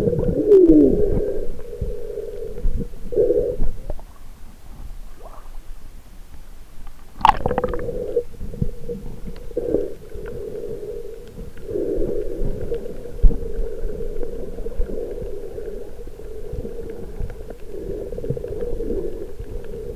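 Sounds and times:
muffled underwater water sloshing: 0.0 - 19.9
sharp crackle: 6.8 - 19.9.

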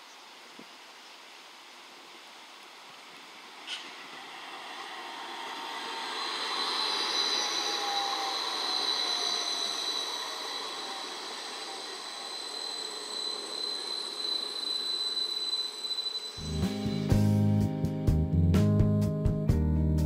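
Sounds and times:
electric tram passing: 3.0 - 18.4.

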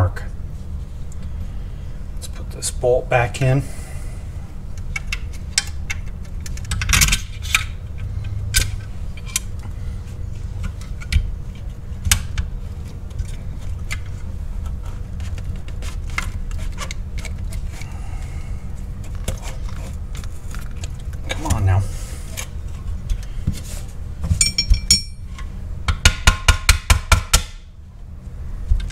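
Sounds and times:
low hum: 0.0 - 25.9
metal parts clinking: 24.4 - 25.2.

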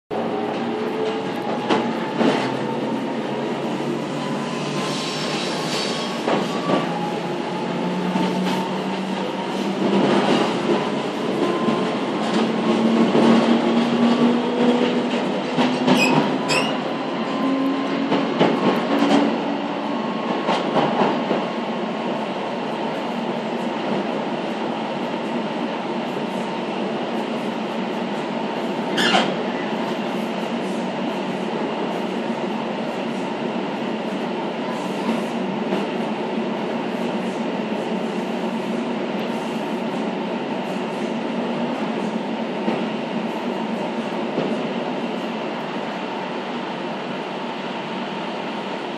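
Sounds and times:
train wheels rumbling on track: 0.1 - 48.9.

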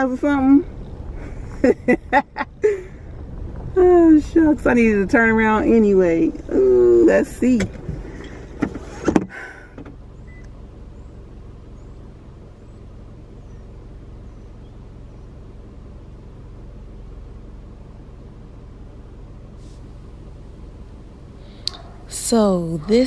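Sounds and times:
car engine idling hum: 0.0 - 23.0
car door clicks and knock: 7.6 - 10.0.

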